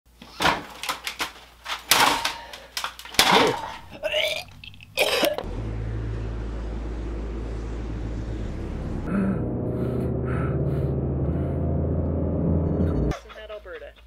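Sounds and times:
steady low hum: 3.4 - 13.1.

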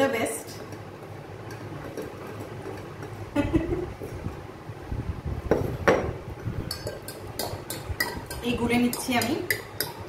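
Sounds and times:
spoon stirring in glass: 6.6 - 10.0.

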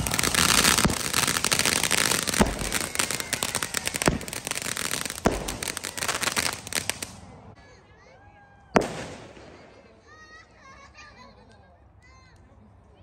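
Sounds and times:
firework bangs: 0.0 - 7.2, 8.8 - 10.0
firework fountains crackling: 0.0 - 7.4.

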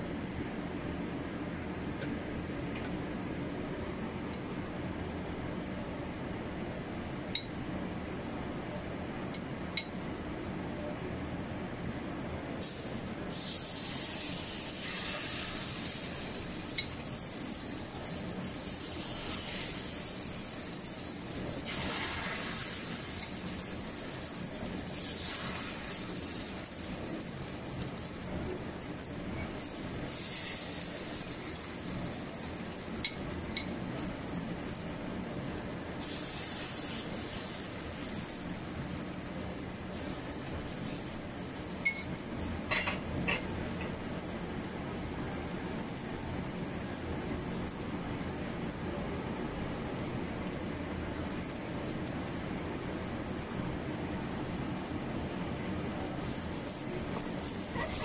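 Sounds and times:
batter sizzling in oil: 12.6 - 58.0.

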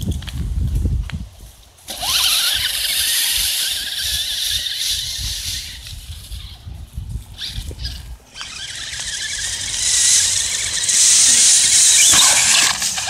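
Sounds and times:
tyres through dry leaves: 0.0 - 13.0
toy truck motor whining: 1.9 - 13.0.

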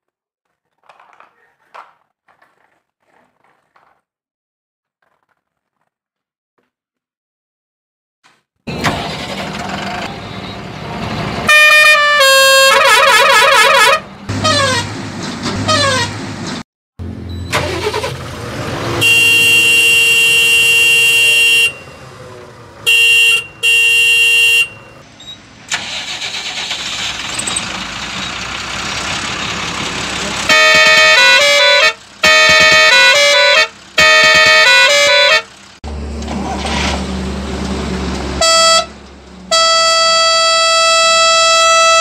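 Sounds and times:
long steady horn blast: 11.5 - 14.9, 18.9 - 25.0, 30.2 - 35.5, 37.8 - 42.0
short horn honks: 11.5 - 14.9, 15.7 - 16.2, 19.0 - 25.0, 30.4 - 35.5, 38.4 - 42.0.

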